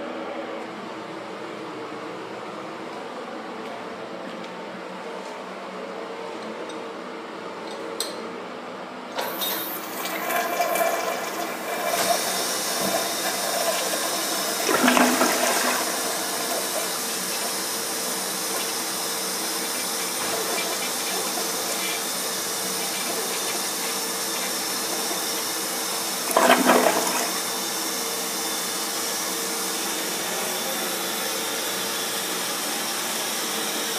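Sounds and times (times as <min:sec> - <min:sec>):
toilet flushing: 0:09.2 - 0:33.9
refill water rushing: 0:09.7 - 0:27.7.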